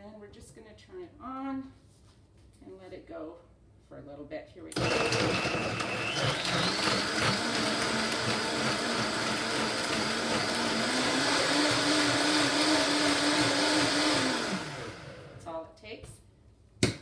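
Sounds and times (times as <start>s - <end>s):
blender running: 4.8s - 15.4s.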